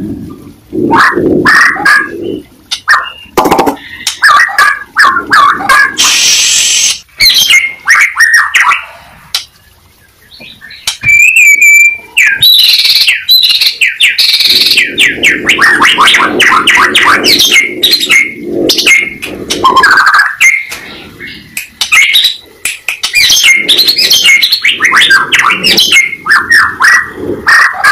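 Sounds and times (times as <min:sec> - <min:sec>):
bird singing varied song: 0:02.0 - 0:04.6, 0:07.2 - 0:08.9, 0:09.5 - 0:27.4.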